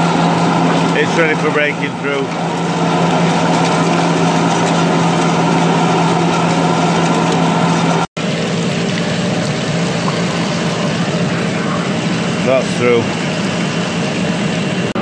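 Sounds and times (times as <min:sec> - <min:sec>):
lathe running: 0:00.0 - 0:15.0.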